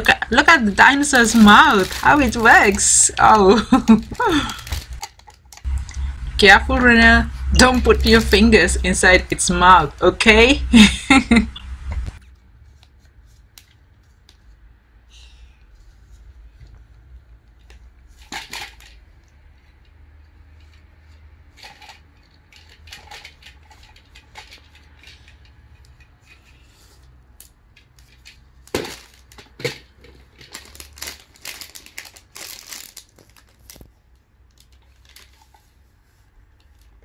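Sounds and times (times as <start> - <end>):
plastic toy clicking and rattling: 4.1 - 5.8, 21.5 - 26.5.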